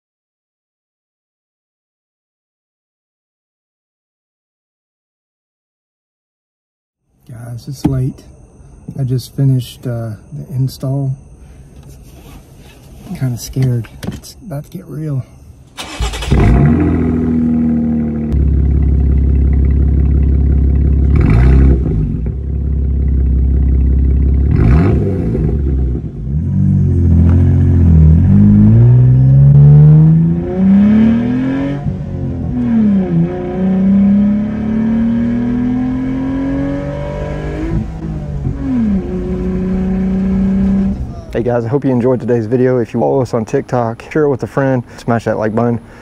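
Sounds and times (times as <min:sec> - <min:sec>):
car accelerating through gears: 0:15.8 - 0:18.4, 0:21.0 - 0:22.4, 0:24.4 - 0:41.3
loud car exhaust revving: 0:15.9 - 0:41.1.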